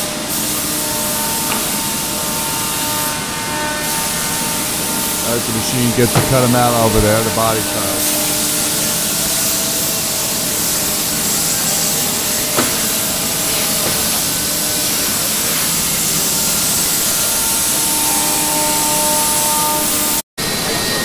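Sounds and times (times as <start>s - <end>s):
router cutting wood: 0.3s - 8.8s
short knock: 6.1s - 7.6s.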